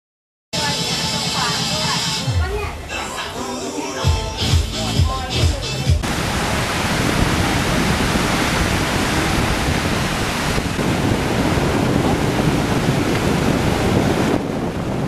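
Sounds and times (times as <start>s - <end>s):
wind: 4.7s - 15.0s
surf breaking on beach: 6.0s - 15.0s.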